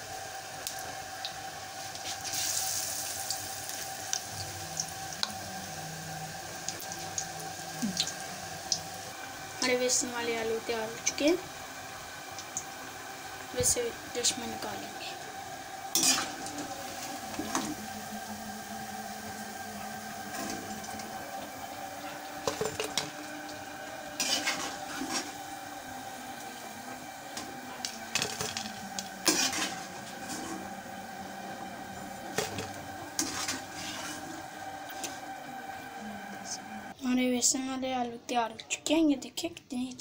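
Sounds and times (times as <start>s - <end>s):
oil sizzling: 0.0s - 37.0s.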